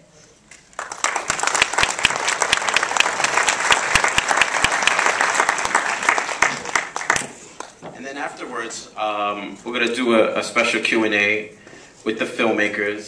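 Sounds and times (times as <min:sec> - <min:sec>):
audience applauding: 0:00.7 - 0:07.8.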